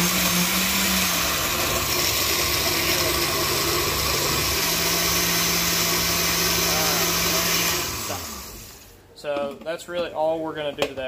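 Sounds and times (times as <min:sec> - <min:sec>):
blender motor humming: 0:00.0 - 0:08.9.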